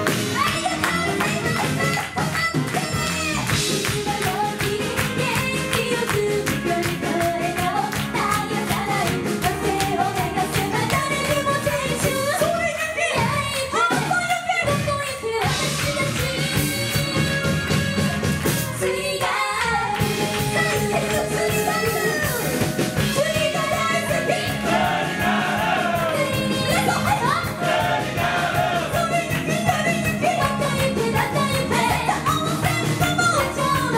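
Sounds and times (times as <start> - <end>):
live band playing pop-rock: 0.0 - 33.9
women singing: 0.5 - 33.9.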